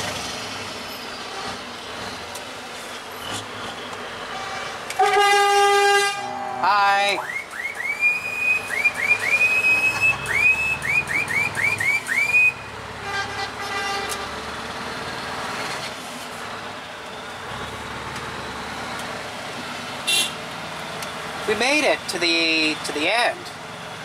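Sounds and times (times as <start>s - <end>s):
high-pitched air horn toots: 4.3s - 6.9s
faint low horn: 5.0s - 6.8s.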